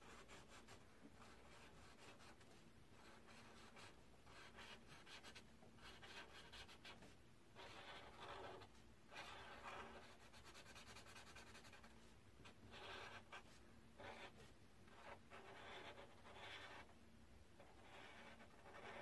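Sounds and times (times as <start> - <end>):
marker scratching on paper: 0.0 - 17.0, 17.6 - 19.0.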